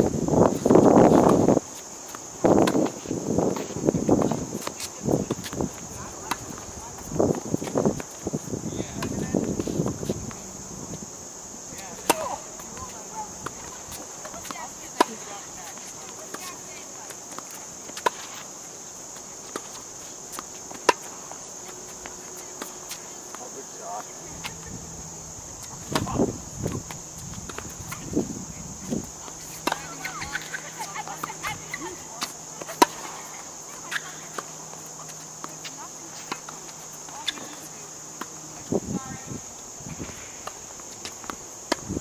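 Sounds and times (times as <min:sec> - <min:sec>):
insects droning: 0:00.0 - 0:42.0
tennis balls struck and bouncing: 0:00.8 - 0:08.2, 0:08.9 - 0:11.0, 0:11.7 - 0:18.4, 0:19.2 - 0:21.6, 0:25.6 - 0:28.1, 0:29.0 - 0:38.3.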